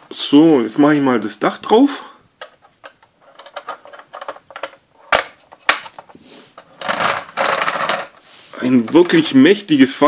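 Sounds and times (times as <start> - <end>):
plastic toy parts clicking: 2.4 - 6.0, 6.7 - 8.1
plastic snaps: 2.4 - 6.1.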